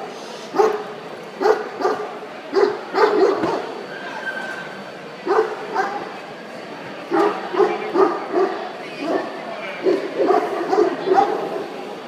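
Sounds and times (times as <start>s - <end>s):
dog barking: 0.5s - 0.8s, 1.4s - 3.7s, 5.3s - 6.0s, 7.1s - 11.5s.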